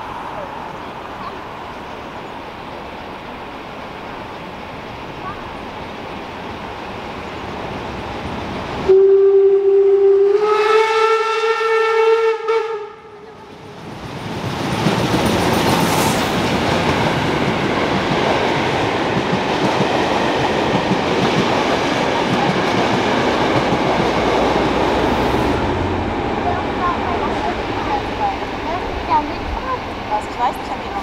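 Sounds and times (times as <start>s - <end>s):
train running past on rails: 0.0s - 31.0s
steam locomotive whistle: 8.9s - 13.4s.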